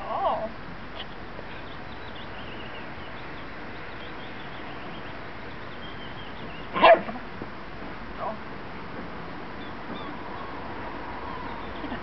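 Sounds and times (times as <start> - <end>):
dog barking: 6.8 - 7.2.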